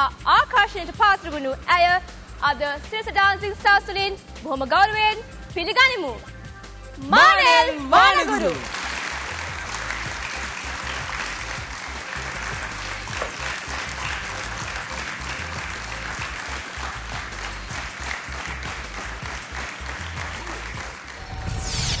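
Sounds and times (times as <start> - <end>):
music playing: 0.0 - 22.0
audience applauding: 7.8 - 21.4.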